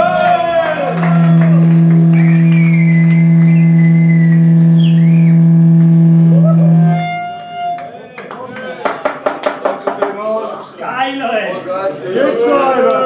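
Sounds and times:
electric guitar feedback drone: 0.0 - 7.9
whistling feedback tone: 0.8 - 7.8.

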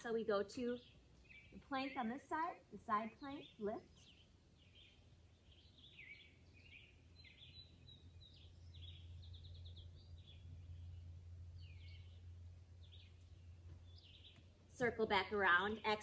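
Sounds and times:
low steady hum: 0.0 - 16.0
small birds chirping: 0.0 - 16.0
bird trill: 3.0 - 14.4.

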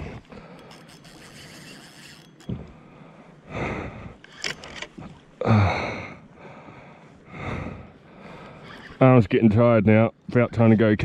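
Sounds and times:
man breathing hard: 2.7 - 4.2, 5.4 - 8.8.

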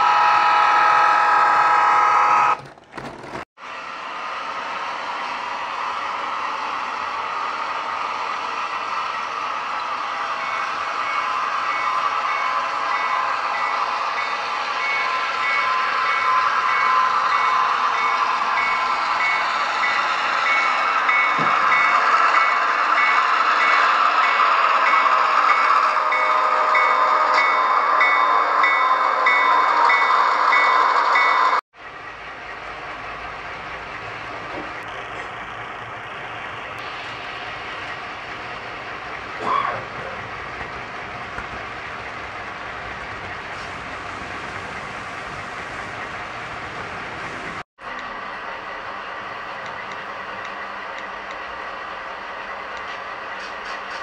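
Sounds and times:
model train rolling on track: 2.1 - 54.0
locomotive bell ringing: 10.3 - 31.5.

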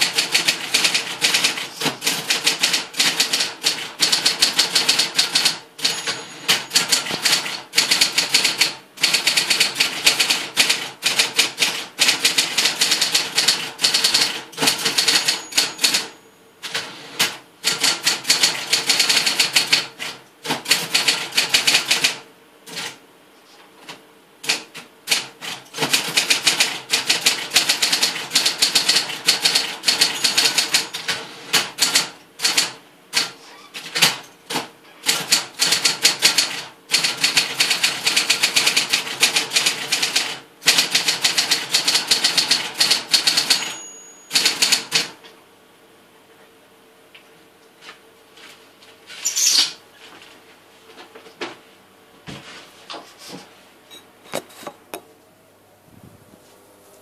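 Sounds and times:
electric typewriter key strikes: 0.0 - 23.0, 24.4 - 45.2
steady typewriter hum: 0.0 - 23.0, 23.8 - 45.3.

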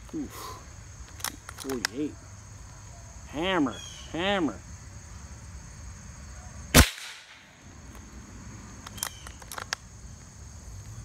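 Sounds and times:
crickets chirping: 0.0 - 11.0
air rifle shot: 6.7 - 7.4.

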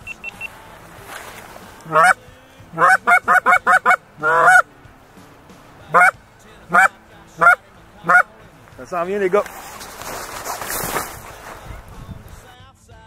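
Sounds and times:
goose honking: 1.8 - 4.8, 5.8 - 8.4.

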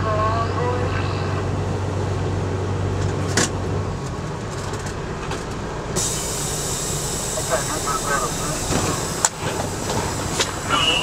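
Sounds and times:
diesel engine idling: 0.0 - 11.0
steady hiss: 6.0 - 11.0.

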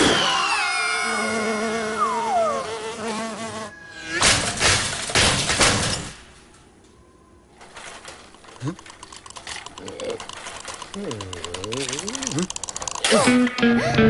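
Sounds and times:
cartoon fly buzzing: 0.9 - 4.2.

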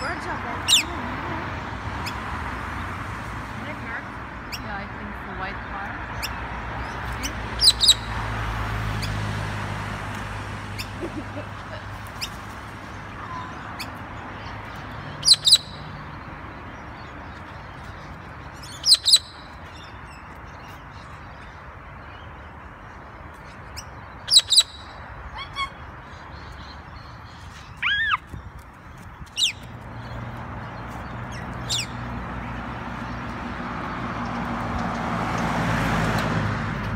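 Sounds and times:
passing vehicle: 0.0 - 36.9
cockatoos screeching: 24.3 - 26.2, 27.7 - 28.3.

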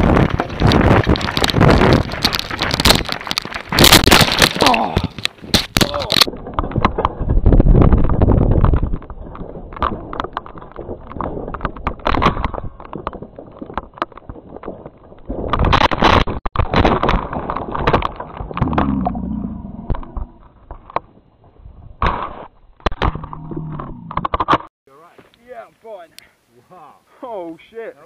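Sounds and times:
mountain bike rattling over rocks: 0.0 - 21.2
bike crash onto rocks: 0.1 - 8.8, 11.3 - 19.0.

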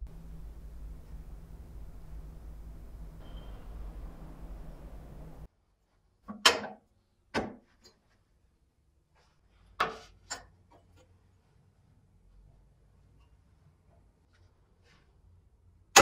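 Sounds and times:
low hum: 0.0 - 5.5.

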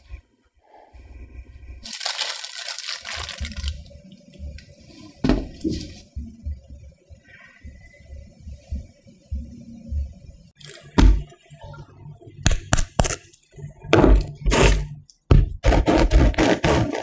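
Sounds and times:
paper crackling rustle: 1.8 - 3.9.

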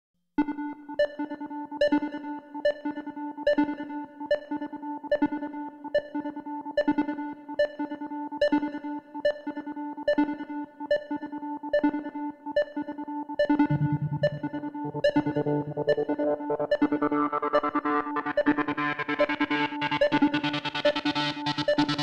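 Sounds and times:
looping synth pattern: 13.4 - 20.3
deep bass line: 13.6 - 18.0.

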